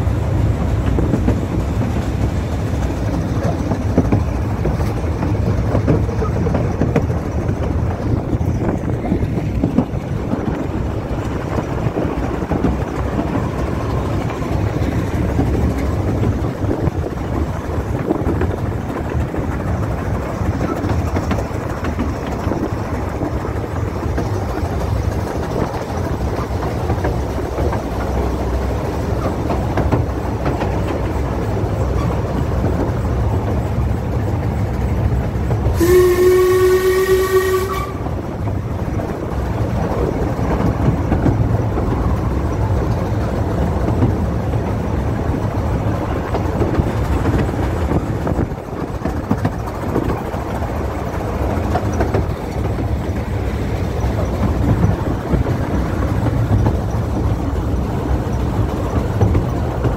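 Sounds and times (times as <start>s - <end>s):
train running with rumble: 0.0s - 59.9s
multi-pitch train whistle: 35.7s - 38.2s.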